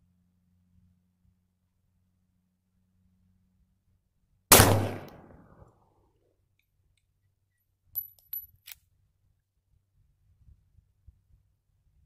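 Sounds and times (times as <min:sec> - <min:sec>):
pistol shot with echo: 0:04.5 - 0:05.6.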